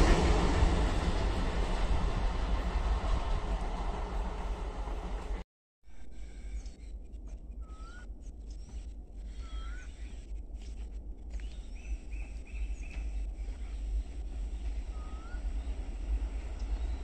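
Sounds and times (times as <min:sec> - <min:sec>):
low steady rumble: 0:06.0 - 0:17.0
birds calling: 0:06.2 - 0:10.8, 0:11.4 - 0:17.0.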